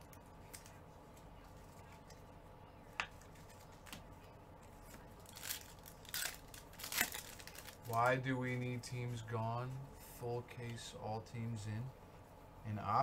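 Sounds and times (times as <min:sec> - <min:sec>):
foil pack crinkling: 0:05.2 - 0:08.2.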